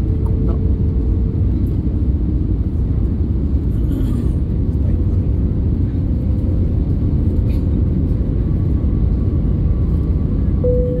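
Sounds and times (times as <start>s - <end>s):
aircraft cabin engine rumble: 0.0s - 11.0s
faint steady hum: 10.6s - 11.0s.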